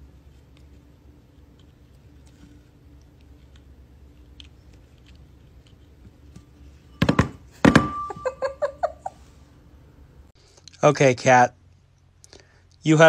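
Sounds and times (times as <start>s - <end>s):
ceramic bowl ringing: 6.9s - 8.5s.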